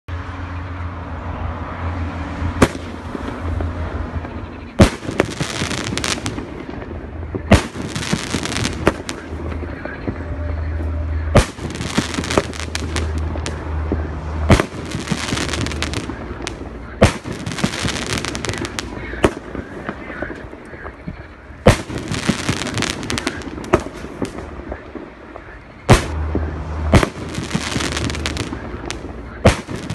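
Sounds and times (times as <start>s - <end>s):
firework bangs: 2.5s - 29.9s
firework hissing: 4.8s - 6.9s, 7.5s - 9.8s, 11.4s - 13.8s, 14.5s - 20.6s, 21.7s - 24.6s, 26.9s - 29.9s.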